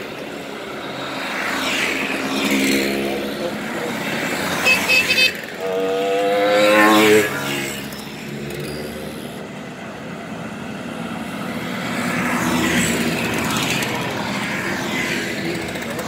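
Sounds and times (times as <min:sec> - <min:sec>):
mopeds buzzing past: 0:01.0 - 0:09.4.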